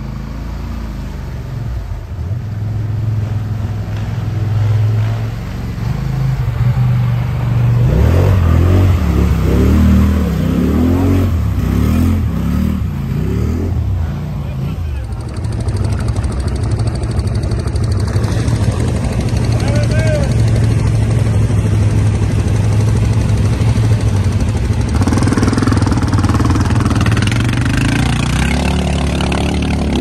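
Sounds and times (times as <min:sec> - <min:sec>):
atv engine revving: 0:00.0 - 0:30.0
tyres churning mud and water: 0:00.0 - 0:30.0.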